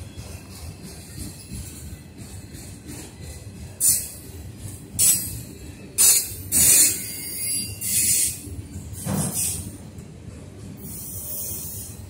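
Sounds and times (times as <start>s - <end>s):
train wheels rumbling on rail: 0.0s - 12.0s
hissing clattering bursts: 9.0s - 9.7s.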